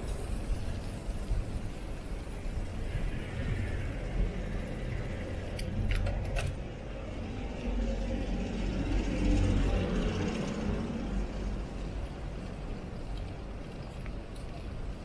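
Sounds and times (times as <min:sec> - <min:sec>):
wind and tyre rumble: 0:00.0 - 0:15.0
bicycle rattling clicks: 0:05.2 - 0:06.8, 0:12.4 - 0:15.0.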